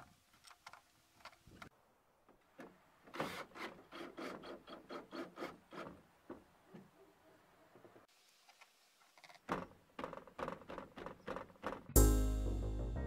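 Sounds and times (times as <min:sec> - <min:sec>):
screw rasping as it turns: 0:03.2 - 0:06.0.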